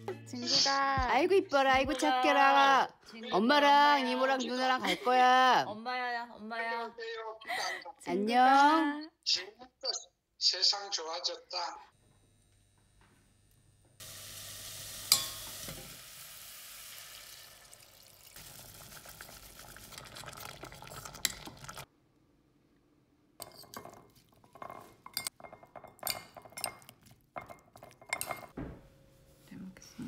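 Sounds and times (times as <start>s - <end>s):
meat sizzling in a saucepan: 14.0s - 21.9s
spoon clinking against pan: 15.1s - 15.8s, 23.4s - 28.5s
spoons clinking in glass bowl: 15.1s - 15.8s, 23.4s - 28.5s.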